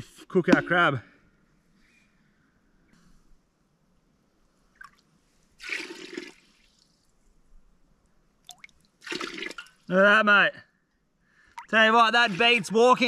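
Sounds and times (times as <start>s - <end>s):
water splashing and trickling: 4.7s - 7.4s, 8.4s - 10.0s, 11.4s - 13.0s.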